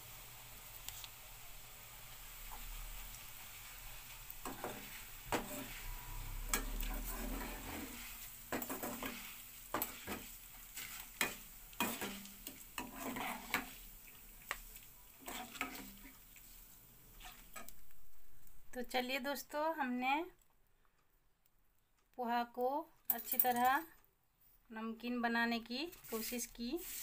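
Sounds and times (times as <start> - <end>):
food sizzling in hot oil: 0.0 - 18.9, 26.0 - 27.0
strainer scraping against pan: 4.4 - 13.9, 15.2 - 16.2, 25.9 - 27.0.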